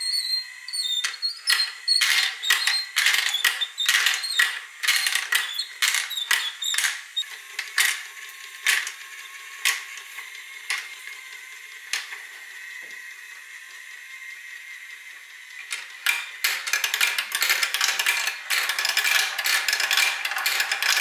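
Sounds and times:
small motor whine: 0:00.0 - 0:21.0
marbles clicking on plastic track: 0:00.2 - 0:10.0, 0:15.6 - 0:21.0.

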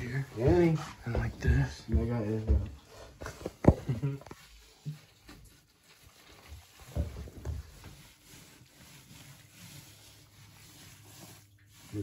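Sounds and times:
hand rustling damp soil: 0:04.4 - 0:12.0.

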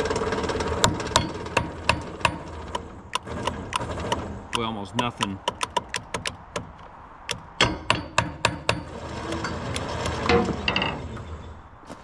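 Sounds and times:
sharp metal taps on motor: 0:04.5 - 0:06.7.

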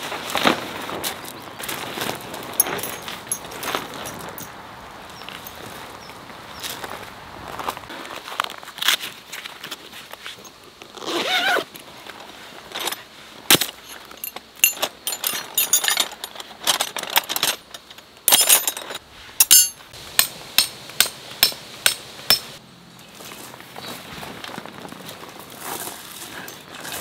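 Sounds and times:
steel tent pegs clinking: 0:01.6 - 0:05.8, 0:10.4 - 0:22.6
zipper pulled open: 0:10.9 - 0:11.7.

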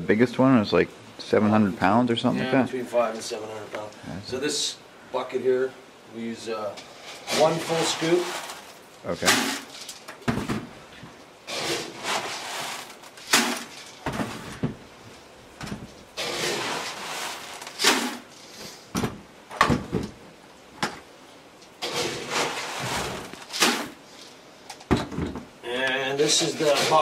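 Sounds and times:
dry feed poured into buckets: 0:07.0 - 0:09.8, 0:11.5 - 0:14.0, 0:16.2 - 0:18.2, 0:21.8 - 0:23.9.

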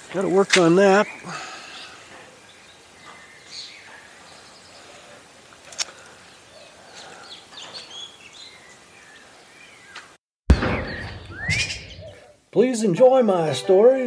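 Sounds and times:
bird chirps: 0:06.3 - 0:12.4.

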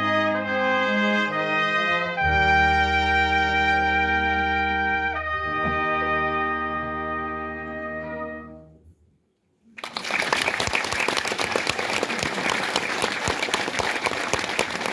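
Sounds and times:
brass ensemble chord: 0:00.0 - 0:08.9
audience applause: 0:09.8 - 0:14.9.

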